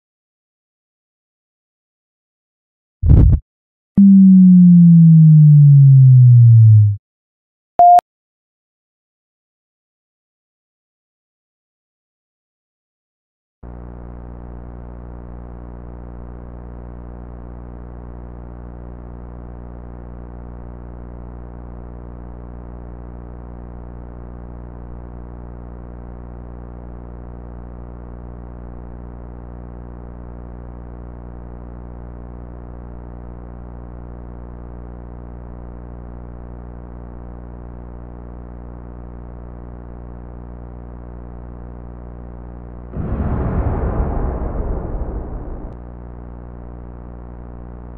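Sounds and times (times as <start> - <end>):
low synthesizer drone: 4.0 - 7.0, 43.0 - 45.8.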